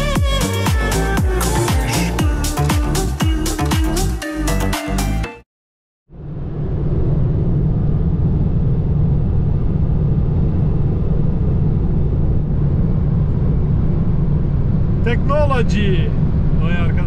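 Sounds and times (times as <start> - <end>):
car engine and road noise: 6.1 - 17.0.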